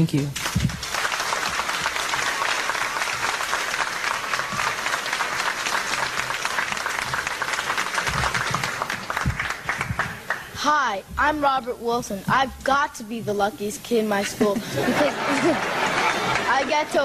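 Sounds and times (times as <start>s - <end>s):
large audience applauding: 0.4s - 10.5s, 15.0s - 17.0s.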